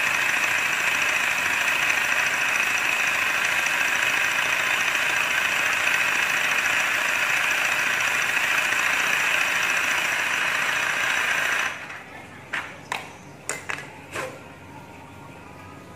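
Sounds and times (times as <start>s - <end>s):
air compressor running: 0.0s - 12.0s.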